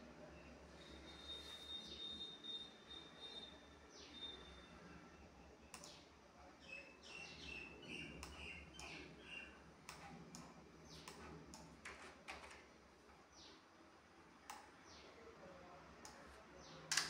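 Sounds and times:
faint low hum: 0:00.0 - 0:17.0
ticks: 0:05.7 - 0:06.0, 0:08.2 - 0:09.0, 0:09.9 - 0:12.6, 0:14.5 - 0:14.8.

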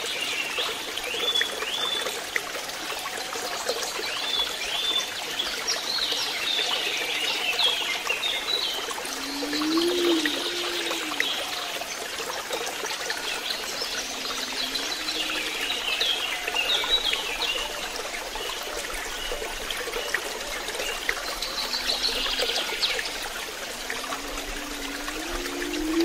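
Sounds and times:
waterfall splashing: 0:08.7 - 0:26.0
low rising calls: 0:09.0 - 0:11.8, 0:13.2 - 0:17.7, 0:20.6 - 0:26.0.

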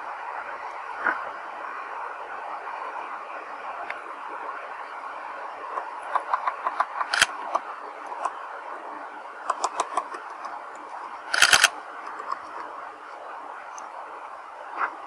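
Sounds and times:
outdoor background hiss: 0:00.0 - 0:15.0
woodpecker tapping on wood: 0:06.0 - 0:07.2.

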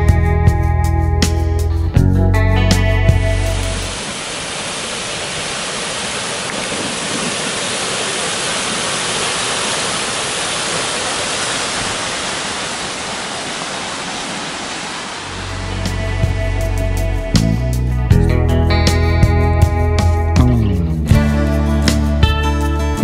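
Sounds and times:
waterfall rushing: 0:03.4 - 0:16.8.

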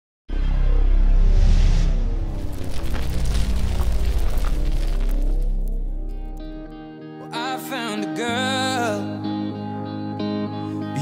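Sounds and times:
soft guitar: 0:04.1 - 0:11.0
person singing love ballad: 0:07.2 - 0:11.0.

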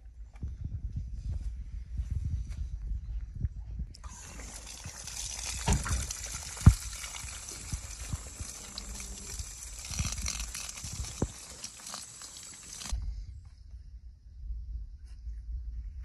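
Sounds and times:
water running and splashing: 0:04.0 - 0:13.0.

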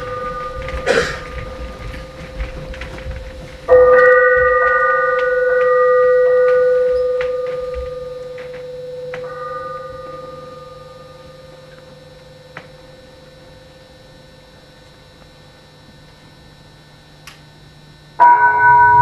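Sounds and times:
steady held tone: 0:00.0 - 0:19.0
bell-like note struck: 0:03.7 - 0:13.0, 0:18.2 - 0:19.0.

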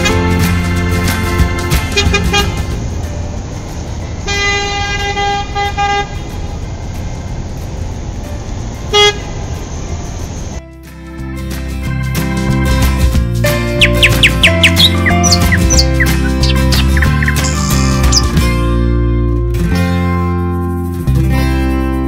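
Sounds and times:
road traffic noise: 0:00.0 - 0:22.0
car horn honking: 0:17.2 - 0:18.3.

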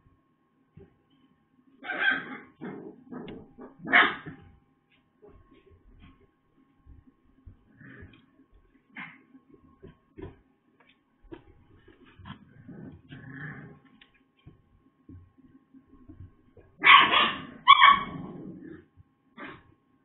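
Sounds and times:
dog barking: 0:01.8 - 0:04.4, 0:16.8 - 0:18.2
faint knocks and rustling: 0:03.2 - 0:16.8.

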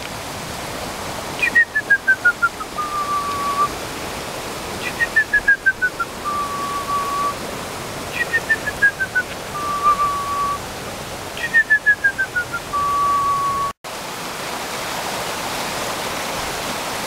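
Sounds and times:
creek rushing: 0:00.0 - 0:17.0
bird singing whistled song: 0:01.4 - 0:03.7, 0:04.8 - 0:07.4, 0:08.1 - 0:10.6, 0:11.4 - 0:13.8.

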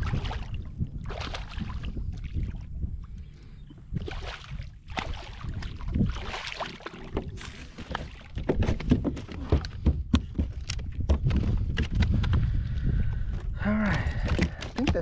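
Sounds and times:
fish splashing at the surface: 0:04.0 - 0:08.3
knocks and thumps on kayak: 0:04.9 - 0:12.5, 0:14.0 - 0:15.0.

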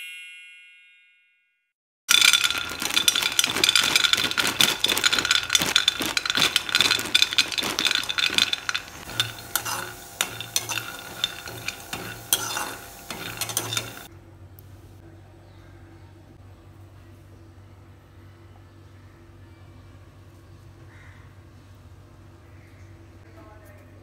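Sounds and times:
peanuts pouring into metal pan: 0:02.1 - 0:14.1
metal ladle scraping a pan: 0:02.2 - 0:14.1.

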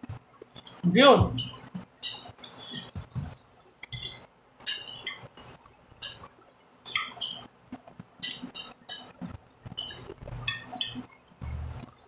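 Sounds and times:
fork scraping a glass plate: 0:01.4 - 0:03.0, 0:03.9 - 0:06.3, 0:06.9 - 0:07.5, 0:08.2 - 0:11.7.

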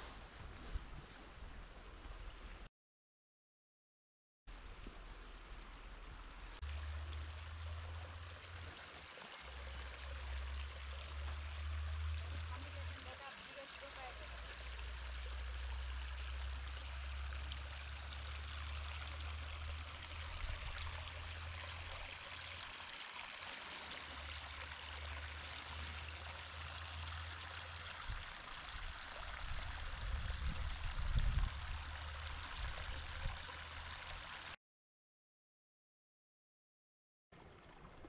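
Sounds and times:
rushing stream water: 0:04.6 - 0:34.6.

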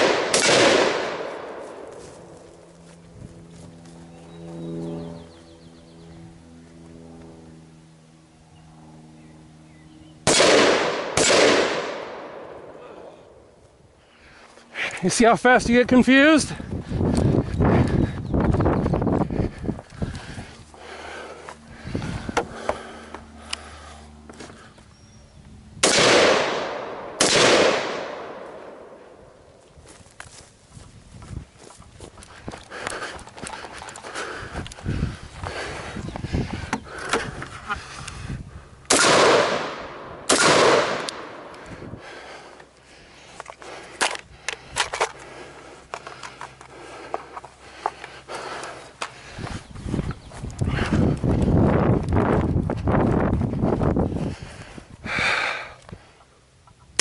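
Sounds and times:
rifle shots with echo: 0:00.0 - 0:01.9, 0:10.2 - 0:12.8, 0:25.8 - 0:29.1, 0:38.9 - 0:41.6
sharp crack: 0:00.0 - 0:01.9, 0:10.2 - 0:12.8, 0:25.8 - 0:29.0, 0:38.9 - 0:41.6
rifle and gear clicking: 0:43.4 - 0:49.2.

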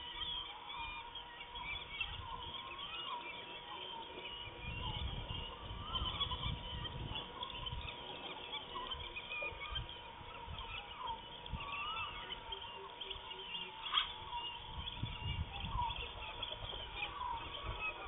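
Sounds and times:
small birds chirping: 0:00.0 - 0:18.0
steady thin hum: 0:00.0 - 0:18.0
wind rumble on microphone: 0:04.4 - 0:08.2, 0:14.2 - 0:18.0.

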